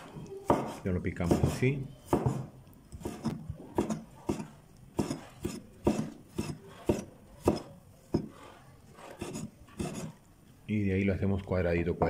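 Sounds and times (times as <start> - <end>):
knife scraping: 2.9 - 10.3.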